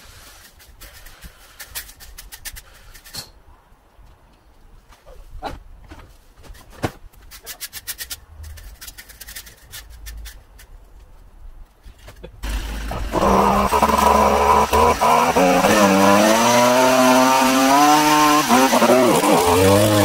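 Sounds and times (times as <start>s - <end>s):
garden rake scraping soil: 12.4s - 20.0s.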